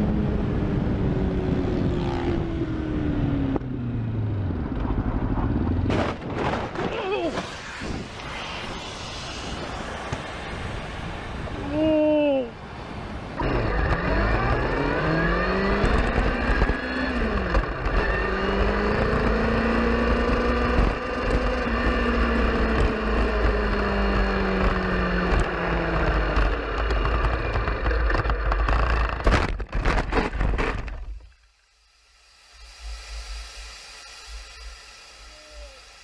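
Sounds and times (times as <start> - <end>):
road and wind rumble: 0.0 - 31.3
car engine accelerating: 13.4 - 29.3.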